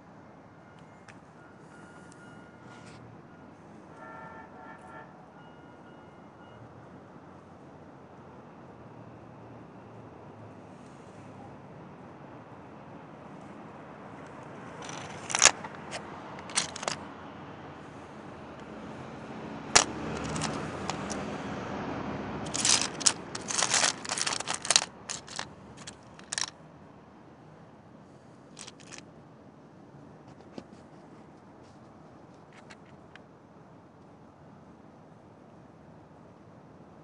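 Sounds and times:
crystals clicking and clinking: 14.8s - 17.0s, 19.8s - 21.3s, 22.4s - 26.5s, 28.6s - 29.0s.

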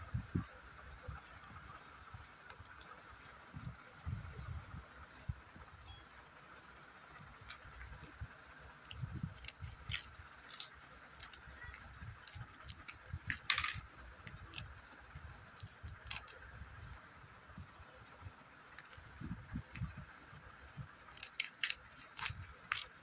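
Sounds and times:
plastic clicks and crinkles: 7.1s - 14.8s, 15.4s - 17.0s, 21.1s - 23.0s.

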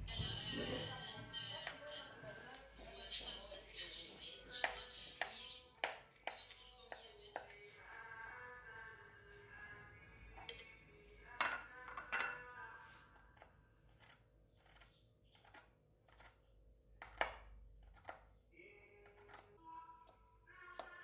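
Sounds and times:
knife chopping on wooden board: 17.0s - 18.2s.

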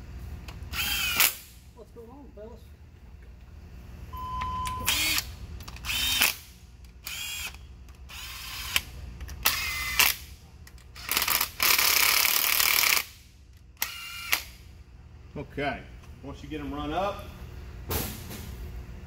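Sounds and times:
cordless ratchet whining: 4.9s - 13.2s, 13.8s - 14.5s.

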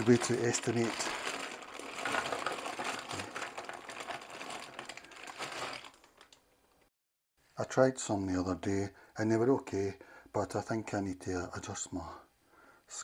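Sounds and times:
frozen chips clattering on plate: 0.0s - 6.3s
plastic bag crinkling: 0.0s - 6.5s.

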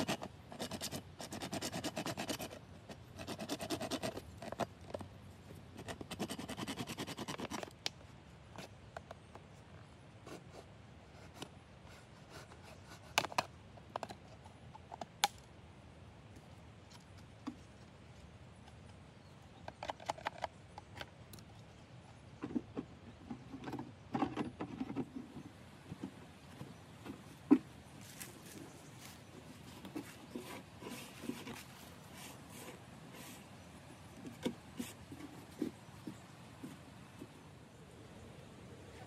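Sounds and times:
light clicks and scratches: 0.0s - 15.2s, 16.4s - 37.4s.

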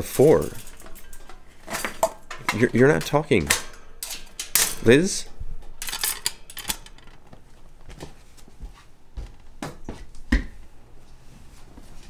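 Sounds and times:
metal bowl clinking on wire bars: 0.0s - 7.0s.

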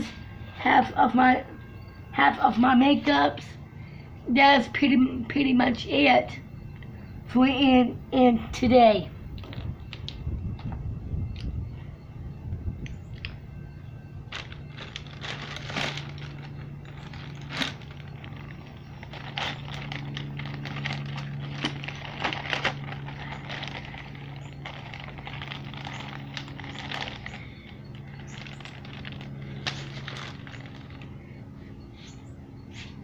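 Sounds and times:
steady low hum: 0.0s - 33.0s
plastic bag crinkling: 14.2s - 31.2s.

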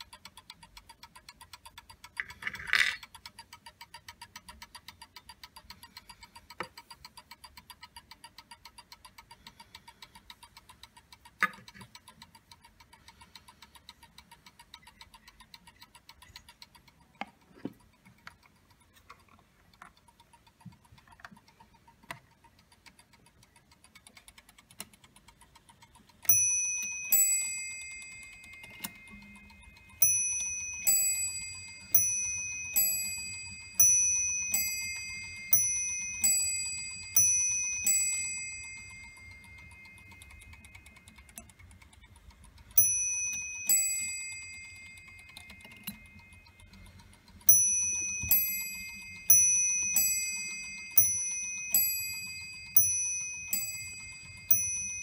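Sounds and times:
clock hands knocks and clicks: 0.0s - 55.0s
clock ticking: 0.0s - 55.0s
clock striking: 26.2s - 41.1s, 42.8s - 46.7s, 47.4s - 55.0s.

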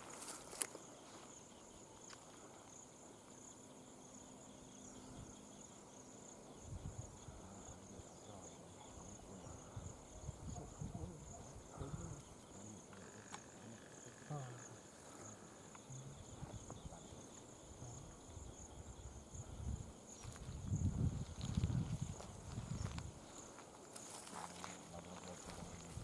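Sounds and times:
insects chirring: 0.0s - 26.0s.

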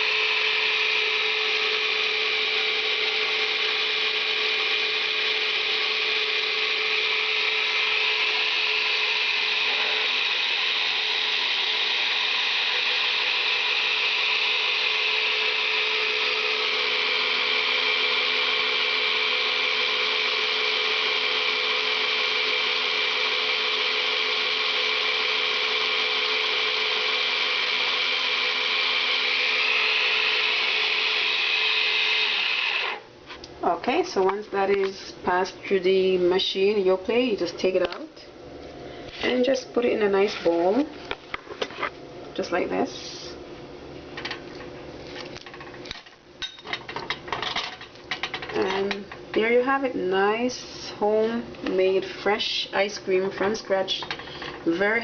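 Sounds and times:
electric motor whirring: 0.0s - 33.1s.

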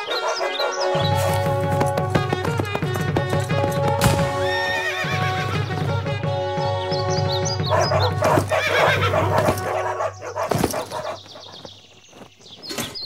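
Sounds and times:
background music: 0.0s - 11.2s
horse whinnying: 1.0s - 11.2s.

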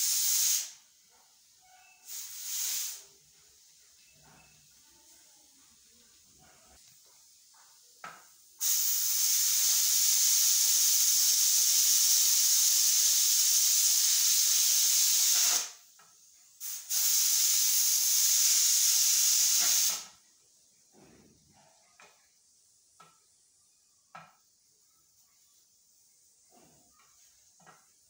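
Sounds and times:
pressure cooker steam hissing: 0.0s - 0.8s, 1.8s - 3.2s, 8.6s - 16.0s, 16.6s - 20.2s.

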